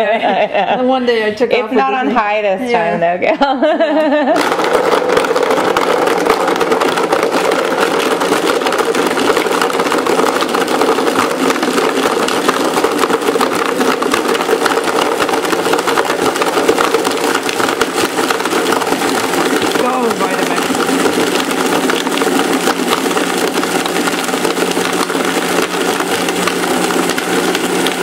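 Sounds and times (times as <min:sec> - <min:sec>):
blender motor whine: 0:04.0 - 0:28.0
ice rattling in blender jar: 0:04.1 - 0:28.0.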